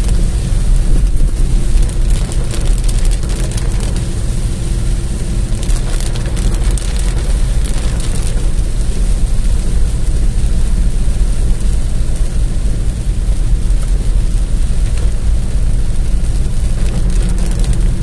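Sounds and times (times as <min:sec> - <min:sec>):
car driving on wet road: 0:00.0 - 0:18.0
heavy rain drumming on car roof: 0:00.0 - 0:18.0.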